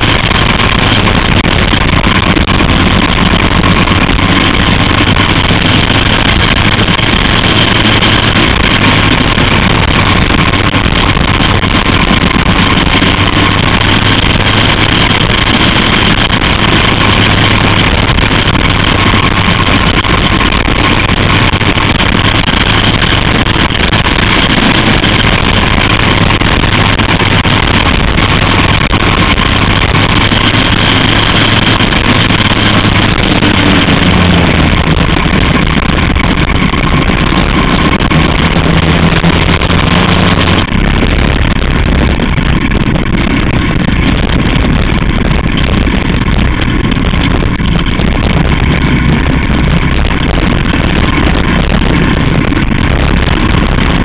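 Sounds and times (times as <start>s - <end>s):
race car engine drone: 0.0s - 54.0s.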